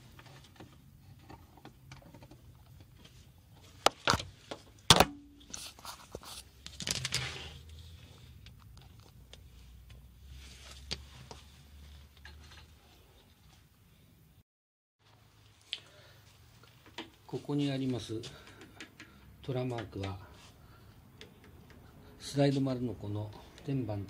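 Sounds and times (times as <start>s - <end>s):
rustling scrape: 5.4s - 8.4s, 9.6s - 13.2s.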